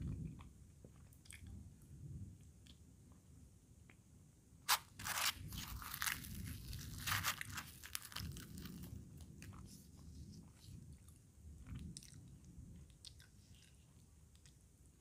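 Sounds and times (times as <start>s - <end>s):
fried bread tearing and crackling: 4.7s - 9.0s.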